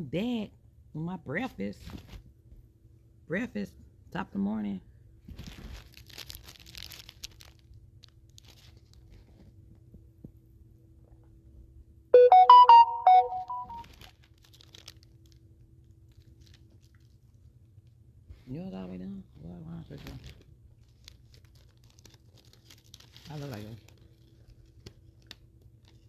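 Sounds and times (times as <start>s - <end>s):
paper wrapper rustling: 5.3s - 9.5s, 13.8s - 17.4s, 19.9s - 26.0s
phone ringtone melody: 12.2s - 13.8s.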